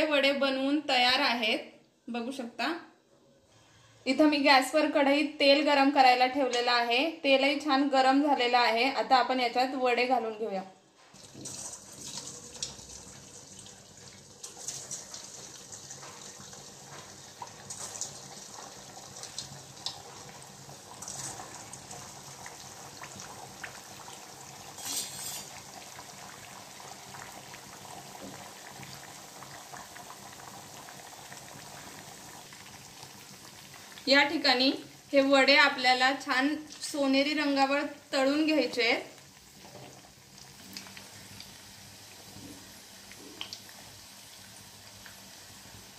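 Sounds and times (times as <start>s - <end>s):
food sizzling in hot oil: 11.1s - 45.9s.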